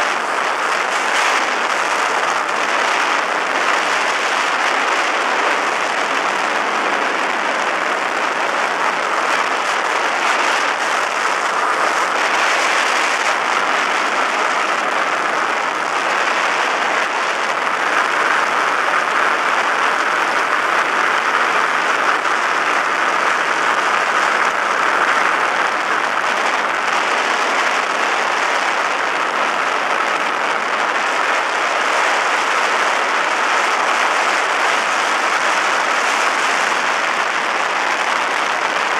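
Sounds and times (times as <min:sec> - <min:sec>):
airflow rush: 0:00.0 - 0:29.8
aircraft engine noise: 0:00.0 - 0:38.9.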